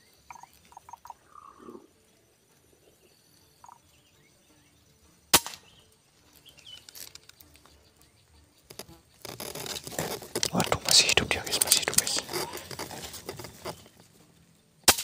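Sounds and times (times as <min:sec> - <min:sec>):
rustling in grass: 0:04.9 - 0:14.7
rifle shot: 0:05.3 - 0:05.7.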